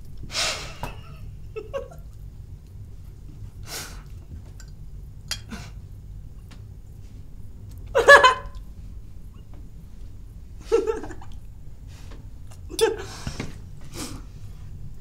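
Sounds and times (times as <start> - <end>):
low steady hum: 0.0 - 15.0
breathy quiet laughs: 10.6 - 11.4.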